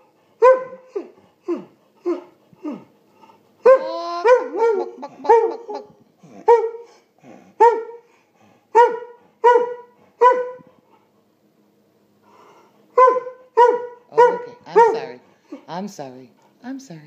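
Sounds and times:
dog barking: 0.4s - 1.1s, 3.6s - 5.8s, 6.5s - 6.9s, 7.6s - 8.0s, 8.7s - 10.7s, 13.0s - 15.2s.

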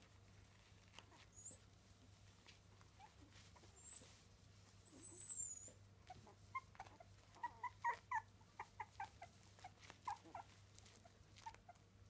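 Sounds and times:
puppies squeaking and whimpering: 1.1s - 1.7s, 3.0s - 4.2s, 4.8s - 11.8s.

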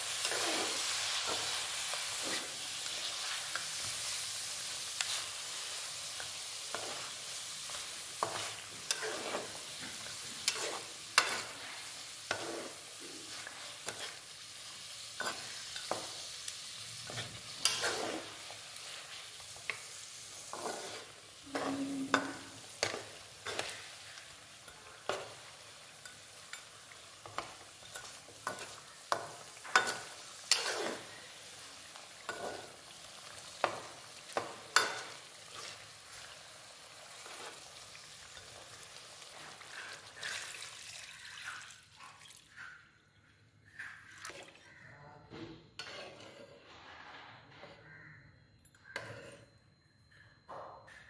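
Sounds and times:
spatula scraping a pan: 0.0s - 32.9s, 36.9s - 40.6s, 45.8s - 48.0s, 48.9s - 49.5s
meat sizzling in oil: 0.0s - 41.9s.

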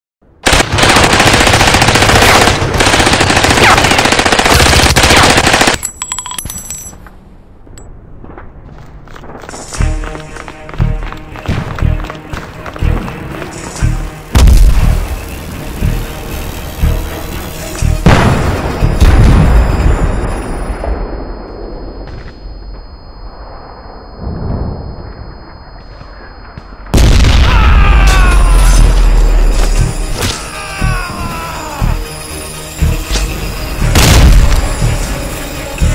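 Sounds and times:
automatic gunfire: 0.4s - 5.8s.

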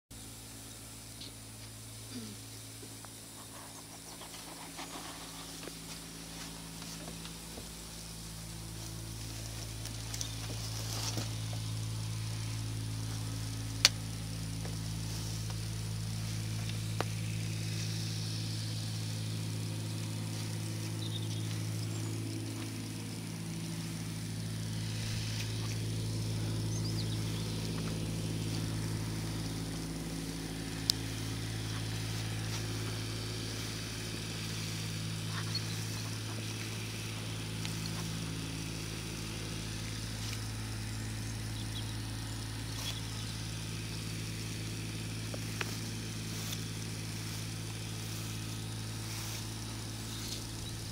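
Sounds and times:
low engine hum: 0.0s - 50.9s.

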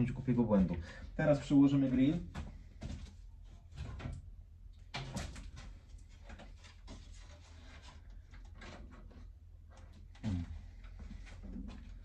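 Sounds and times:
handling knocks and scrapes: 5.0s - 10.1s.

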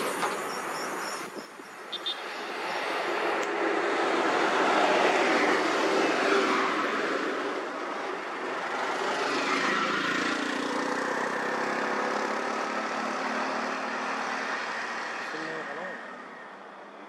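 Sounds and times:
bus engine at low speed: 2.6s - 17.0s
small auto rickshaw engine: 5.4s - 16.9s.

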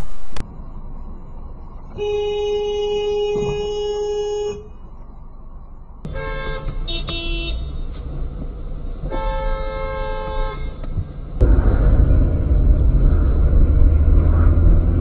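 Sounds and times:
low road noise: 0.0s - 15.0s
car horn honking: 2.0s - 4.8s, 6.1s - 7.8s.

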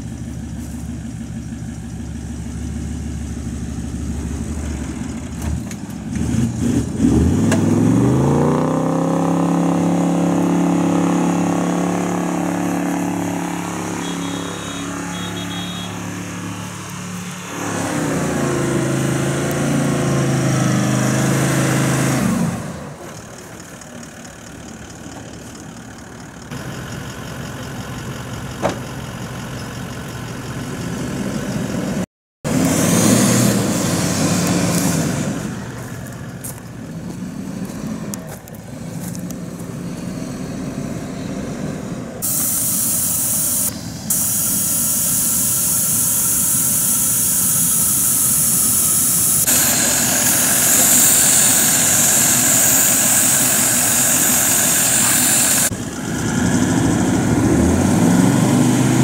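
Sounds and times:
vehicle engine revving and labouring: 0.0s - 59.0s
steady hiss: 42.2s - 55.7s.

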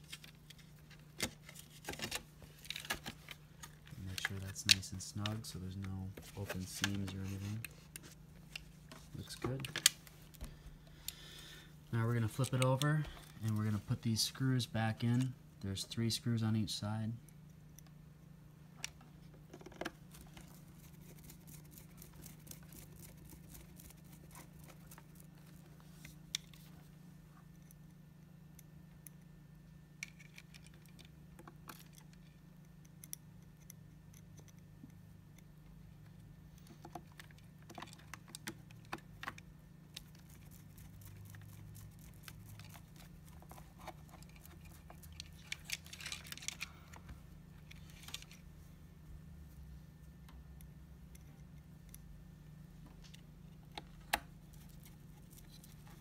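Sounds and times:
plastic parts being handled: 0.0s - 10.5s, 36.6s - 48.4s
steady low hum: 0.0s - 56.0s.

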